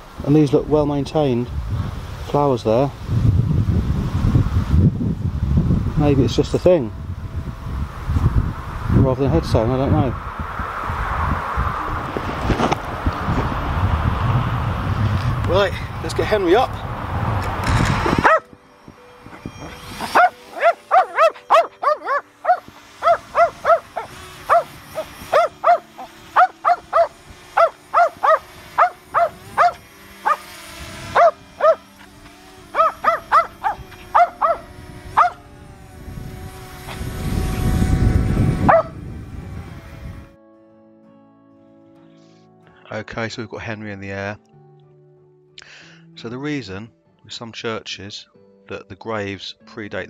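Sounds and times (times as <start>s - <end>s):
loud rush of noise: 7.0s - 21.5s
small dog yapping: 18.2s - 18.5s, 20.0s - 30.4s, 31.2s - 31.8s, 32.7s - 35.4s, 38.7s - 38.9s.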